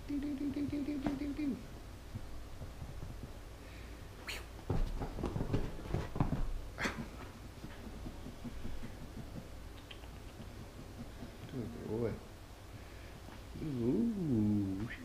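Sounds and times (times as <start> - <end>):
squirrel scrambling on fabric: 1.0 - 3.6, 4.2 - 12.2
squirrel hissing: 3.6 - 4.6.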